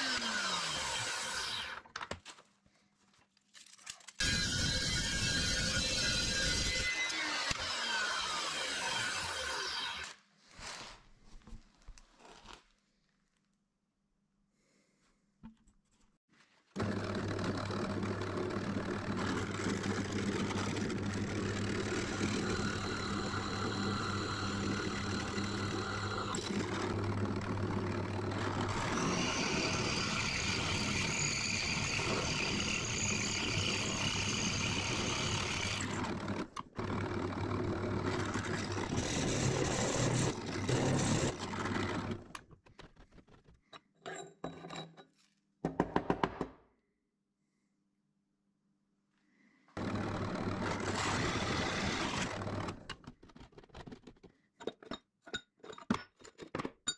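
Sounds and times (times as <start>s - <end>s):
drill bit squealing through steel: 4.2s - 10.1s, 28.8s - 35.8s
drill press motor humming: 16.8s - 42.0s, 49.8s - 52.8s.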